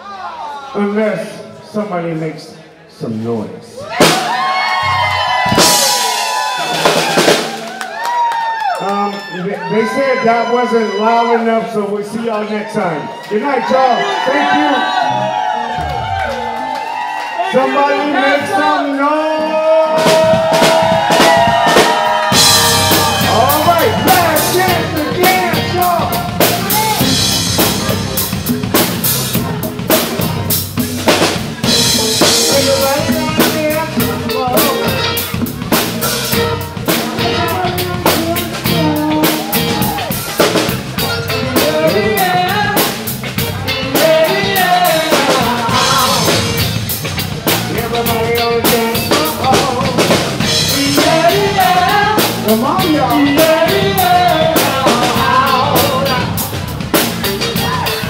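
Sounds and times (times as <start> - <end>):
live band playing dance song: 3.8 - 58.0
drum kit beat: 3.9 - 8.5, 19.9 - 58.0.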